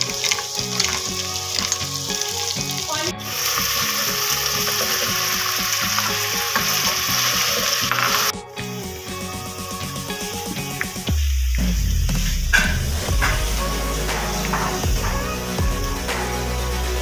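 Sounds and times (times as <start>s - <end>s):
soft background music: 0.0s - 11.2s
vegetables sizzling in oil: 0.0s - 14.8s.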